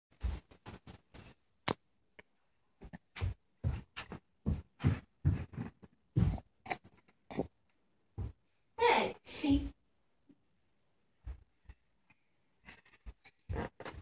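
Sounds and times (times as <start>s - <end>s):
child's footsteps on carpet: 2.8s - 6.6s, 8.1s - 8.5s.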